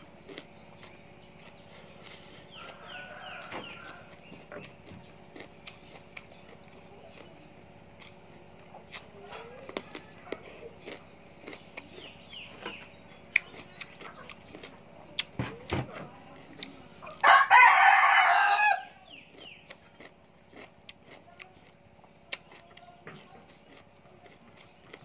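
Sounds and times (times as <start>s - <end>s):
person eating raw vegetables: 0.0s - 17.4s, 18.9s - 25.0s
rooster crowing: 2.6s - 4.2s, 17.2s - 19.0s.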